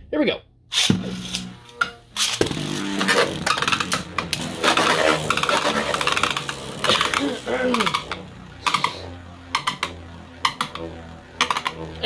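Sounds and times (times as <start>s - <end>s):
spinning top launch burst: 0.7s - 12.0s
spinning tops whirring: 0.7s - 12.0s
tops rattling and clicking: 3.0s - 11.8s.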